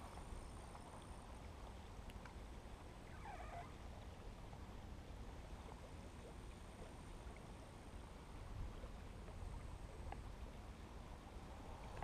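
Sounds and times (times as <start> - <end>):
faint low rumble: 0.0 - 12.0.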